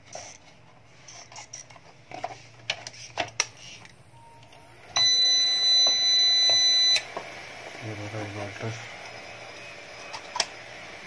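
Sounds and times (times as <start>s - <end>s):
high-pitched electronic beep: 4.2s - 7.0s.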